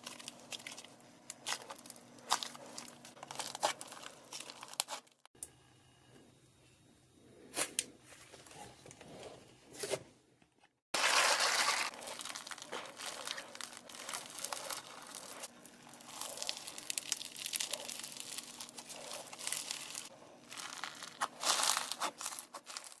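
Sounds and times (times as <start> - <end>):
foam-bead slime crackling: 0.0 - 5.2, 11.0 - 23.0.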